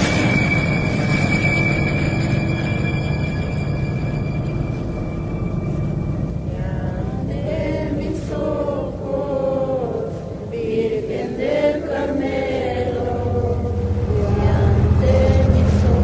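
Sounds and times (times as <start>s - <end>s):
low steady drone: 0.0s - 16.0s
chant-like singing voices: 6.4s - 16.0s.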